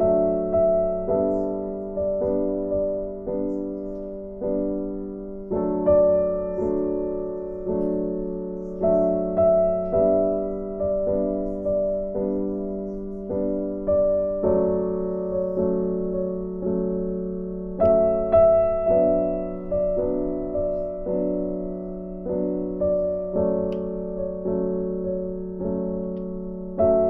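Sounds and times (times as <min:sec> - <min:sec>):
gentle piano melody: 0:00.0 - 0:27.0.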